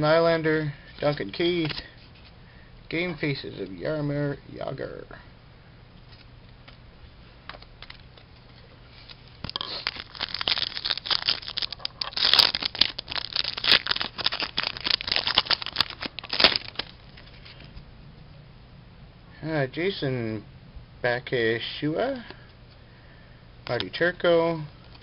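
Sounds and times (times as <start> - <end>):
foil wrapper tearing and crinkling: 9.4 - 17.3.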